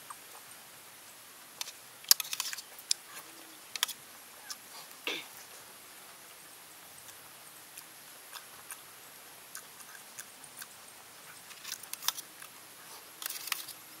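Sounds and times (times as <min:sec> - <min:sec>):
faint high hiss: 0:00.0 - 0:14.0
chewing and smacking: 0:07.0 - 0:13.8.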